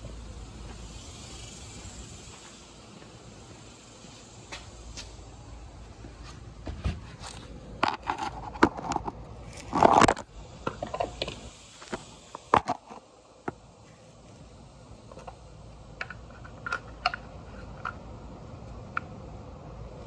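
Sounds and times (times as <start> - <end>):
phone scraping on concrete: 7.2 - 10.3.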